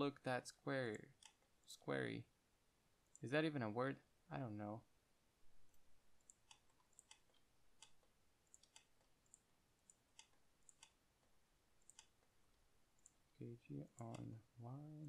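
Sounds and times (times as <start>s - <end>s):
mouse and keyboard clicks: 6.2s - 11.0s, 11.8s - 12.1s.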